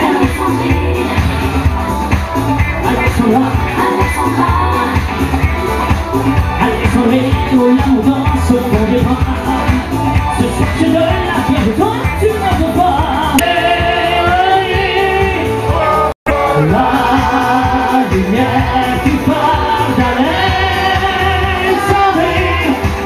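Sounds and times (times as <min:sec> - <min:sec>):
person singing: 0:00.0 - 0:01.6, 0:06.6 - 0:23.0
live pop music over pa: 0:00.0 - 0:23.0.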